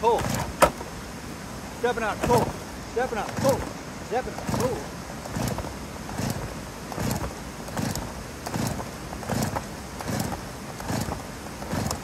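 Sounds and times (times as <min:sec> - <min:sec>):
chainsaw pull-start cranking: 0:00.1 - 0:00.8, 0:03.2 - 0:12.0.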